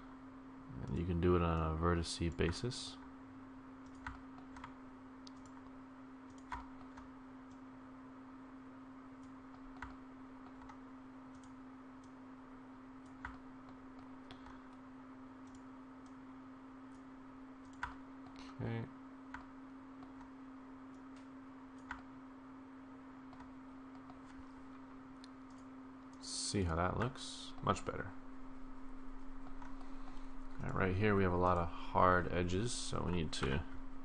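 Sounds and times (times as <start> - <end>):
low electrical hum: 0.0 - 34.0.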